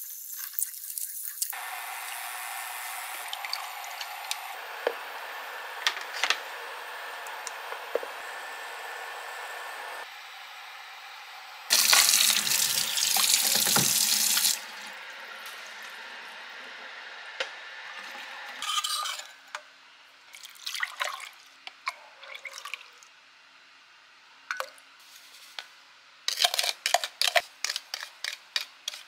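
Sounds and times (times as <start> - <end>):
tap running into bowl: 11.7 - 14.4.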